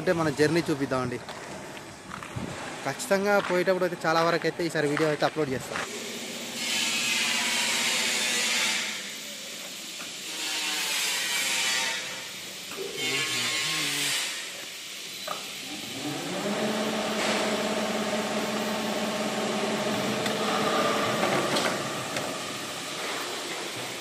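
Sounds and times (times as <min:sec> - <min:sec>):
motor winding up and running: 0:05.8 - 0:23.9.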